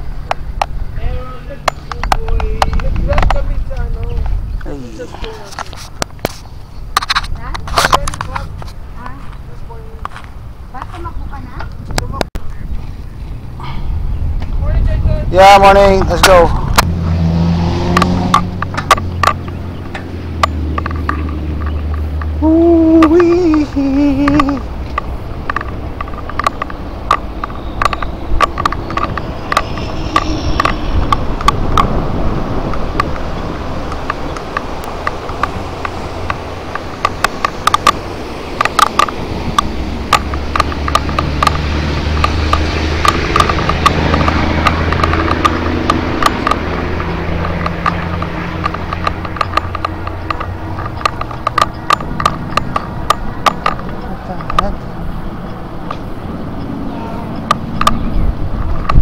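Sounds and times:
e-bike riding rush: 0:00.0 - 0:59.0
low wind rumble: 0:00.0 - 0:59.0
sharp rattling clicks: 0:17.9 - 0:59.0
clicking rattle: 0:23.0 - 0:32.0.

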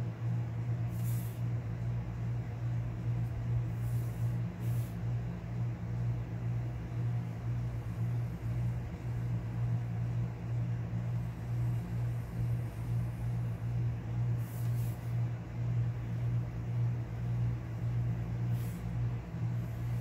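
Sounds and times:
low machine hum: 0:00.0 - 0:20.0
faint hisses: 0:00.8 - 0:01.6, 0:03.2 - 0:05.2, 0:14.3 - 0:15.2, 0:18.4 - 0:20.0.

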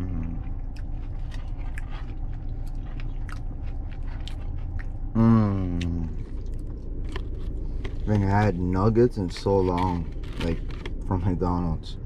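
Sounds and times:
person humming mmm: 0:00.0 - 0:00.6, 0:05.1 - 0:06.2
person chewing crispy food: 0:00.0 - 0:11.3.

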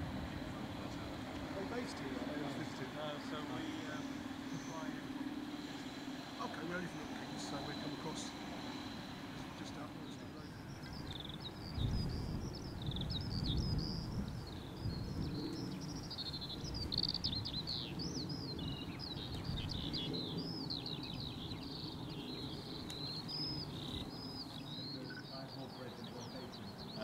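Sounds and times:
songbird chirping and trilling: 0:00.0 - 0:27.0.

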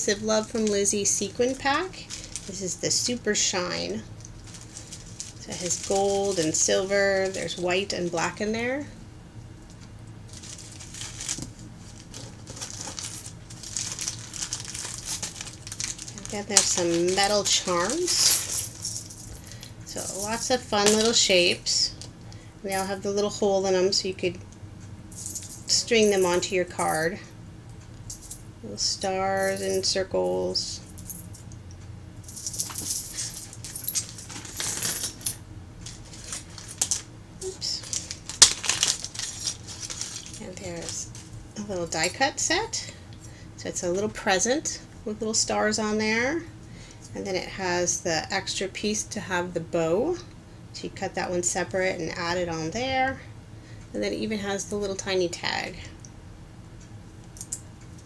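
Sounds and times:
metal charms clinking: 0:00.4 - 0:03.5, 0:04.4 - 0:08.3, 0:12.1 - 0:21.6, 0:32.3 - 0:41.2
plastic packets crinkling: 0:01.5 - 0:02.6, 0:04.2 - 0:07.6, 0:10.3 - 0:19.6, 0:32.6 - 0:35.2, 0:35.8 - 0:41.3.

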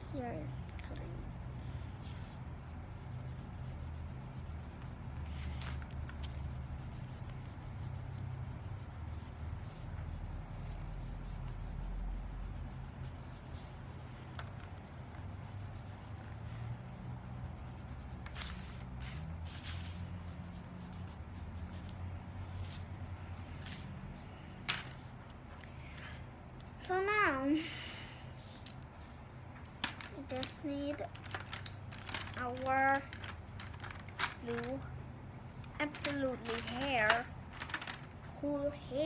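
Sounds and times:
marker scribbling on paper: 0:00.0 - 0:22.1.

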